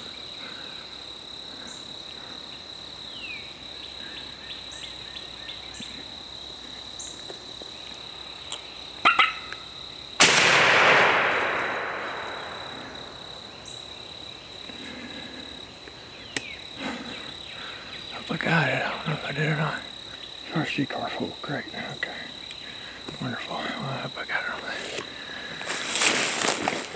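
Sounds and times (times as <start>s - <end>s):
insect trill: 0.0s - 26.9s
shotgun blast echoing: 10.2s - 13.0s.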